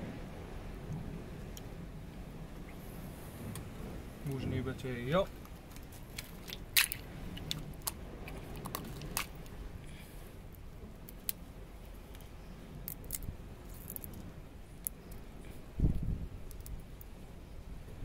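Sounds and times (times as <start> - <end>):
crab shell cracking: 5.4 - 9.5, 11.0 - 11.4, 12.8 - 14.2, 16.4 - 16.8.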